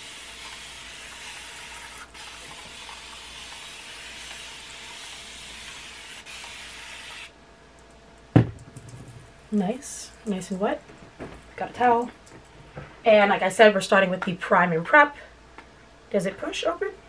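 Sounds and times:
spray bottle misting water: 0.0 - 7.3.

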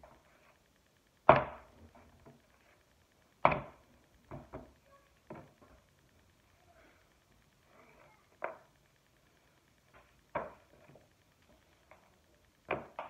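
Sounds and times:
clay slab thumping: 1.2 - 2.4, 3.4 - 5.8, 9.9 - 11.0, 12.6 - 13.0.

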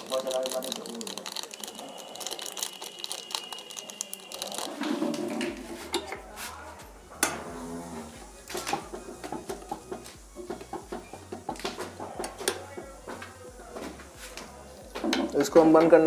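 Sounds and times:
foil sachet crinkling: 0.0 - 4.9.

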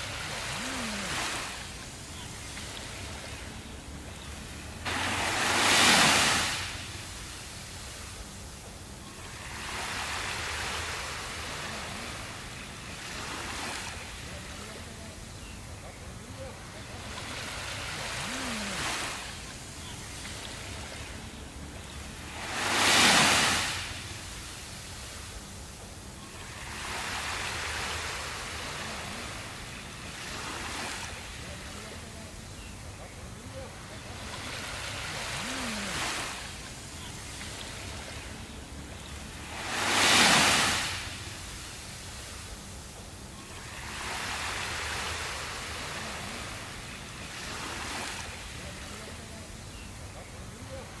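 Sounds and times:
small waves on sandy beach: 0.0 - 51.0.

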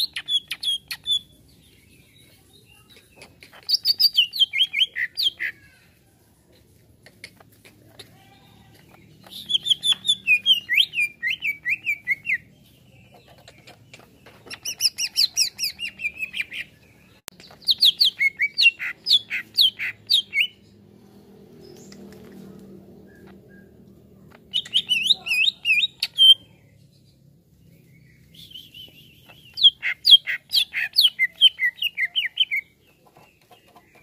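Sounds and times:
bird singing sliding chirps: 8.5 - 34.0.

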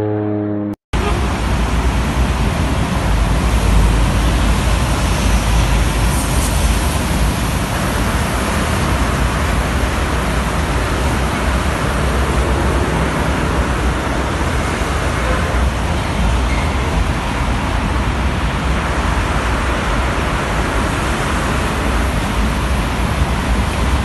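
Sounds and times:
deep engine rumble: 0.0 - 23.3
tyre hiss on wet road: 1.2 - 16.4.

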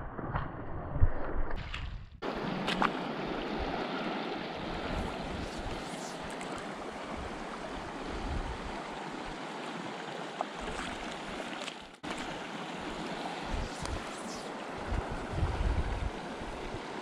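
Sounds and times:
river flowing over stones: 2.2 - 17.0.

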